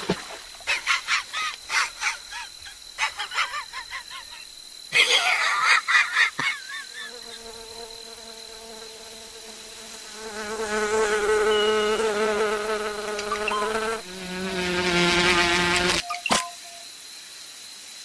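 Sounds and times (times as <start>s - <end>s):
cartoon insect wing buzz: 7.0s - 16.0s.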